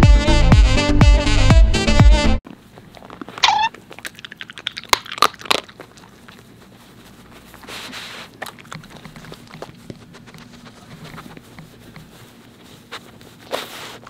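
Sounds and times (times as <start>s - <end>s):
dog crunching dry treats: 2.8s - 6.8s
dog sniffing: 5.8s - 14.0s
dog snuffling in mat: 6.4s - 14.0s.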